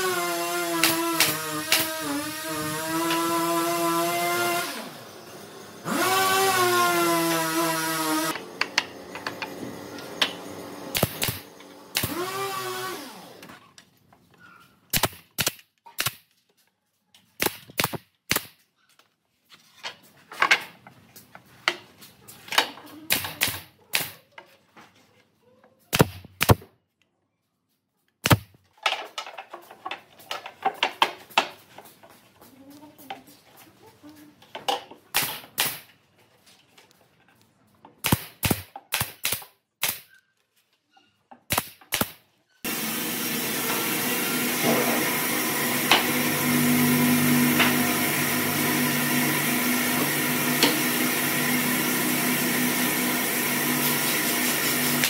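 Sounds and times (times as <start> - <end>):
electric power tool whining: 0.0 - 13.6, 42.7 - 55.0
nail gun firing into boards: 0.7 - 2.2, 10.9 - 12.2, 14.9 - 16.3, 17.4 - 18.6, 22.6 - 24.2, 25.9 - 26.7, 28.2 - 29.1, 35.1 - 35.9, 38.0 - 40.1, 41.4 - 42.2.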